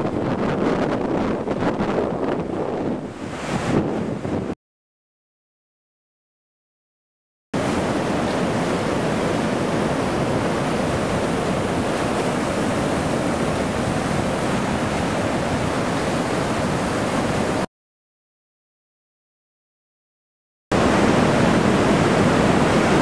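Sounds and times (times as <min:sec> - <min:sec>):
river rushing through dam: 0:07.6 - 0:17.7, 0:20.8 - 0:23.0.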